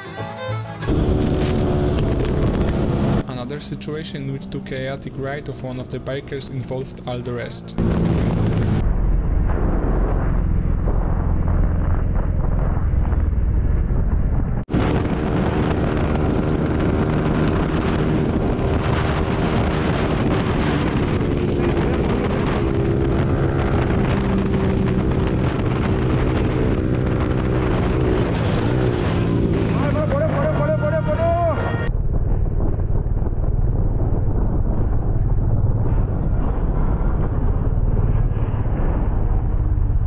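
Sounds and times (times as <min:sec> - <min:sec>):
motorcycle engine hum: 0:00.0 - 0:40.0
wind rushing over microphone: 0:00.9 - 0:03.3, 0:07.7 - 0:40.0.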